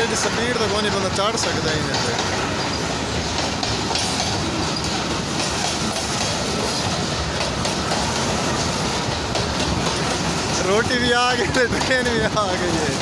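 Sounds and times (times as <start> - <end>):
train wheels rumbling on rails: 0.0 - 13.0
wheels clattering over rail joints: 0.0 - 13.0.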